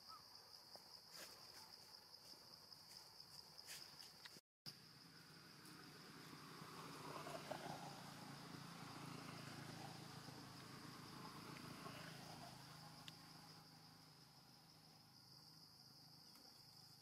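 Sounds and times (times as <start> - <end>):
insects droning: 0.0 - 17.0.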